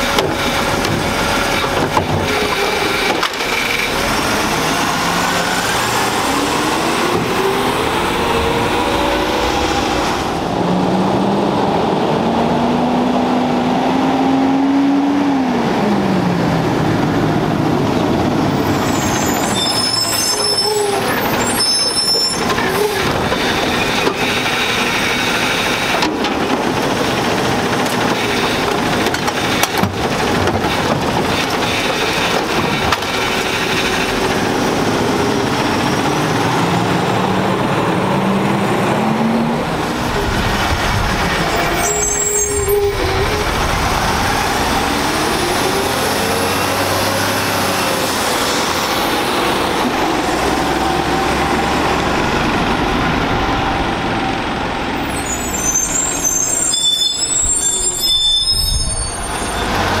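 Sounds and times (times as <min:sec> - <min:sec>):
garbage truck engine revving: 0:00.0 - 1:00.0.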